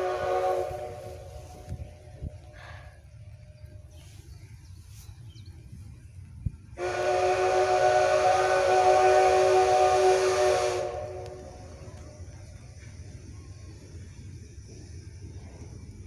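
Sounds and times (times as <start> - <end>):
steam locomotive whistle: 0.0 - 1.8, 6.8 - 12.2
steam hiss: 0.0 - 5.3, 6.7 - 16.0.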